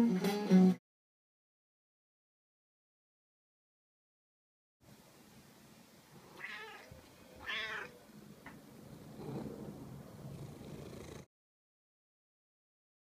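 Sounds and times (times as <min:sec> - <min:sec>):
quiet low cat sound: 0:06.1 - 0:11.3
cat meowing: 0:06.3 - 0:08.0.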